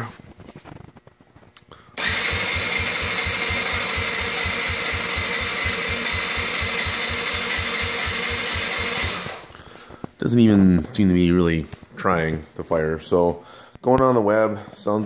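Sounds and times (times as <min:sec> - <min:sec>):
electric starter cranking engine: 0:02.0 - 0:09.6.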